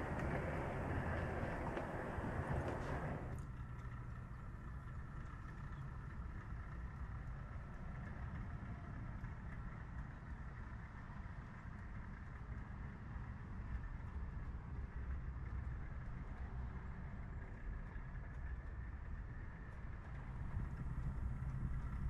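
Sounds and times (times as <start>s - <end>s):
faint steady tones: 0.0s - 3.4s
low engine-like rumble: 0.0s - 22.0s.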